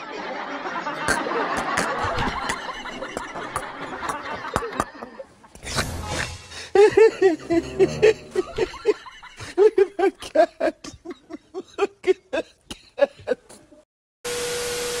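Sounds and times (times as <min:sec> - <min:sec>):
high-pitched snickering laughter: 0:00.7 - 0:13.8.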